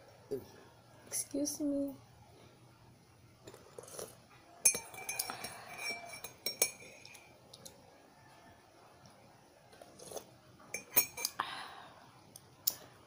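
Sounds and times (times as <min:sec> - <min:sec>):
metal spoon clinking on mug: 0:04.6 - 0:07.3, 0:10.7 - 0:11.4.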